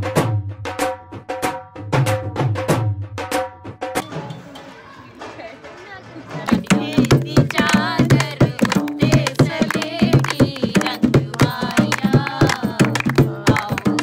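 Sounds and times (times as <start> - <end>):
dholak drum beating: 0.0 - 14.0
hands clapping: 5.2 - 14.0
woman singing folk song: 6.5 - 14.0.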